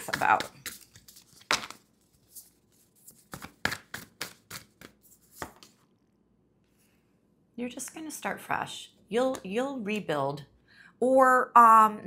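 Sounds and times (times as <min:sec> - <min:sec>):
cards being shuffled: 0:00.0 - 0:05.8.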